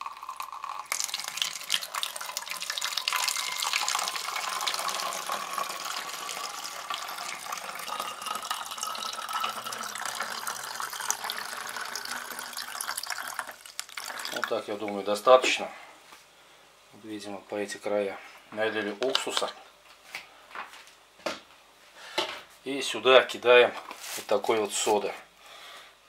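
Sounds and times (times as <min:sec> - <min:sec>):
liquid trickling into plastic bottle: 0:00.0 - 0:14.6.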